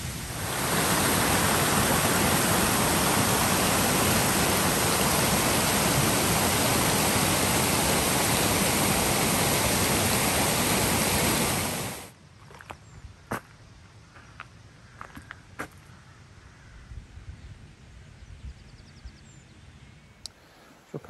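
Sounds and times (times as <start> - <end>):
waterfall pouring into pool: 0.0 - 12.1.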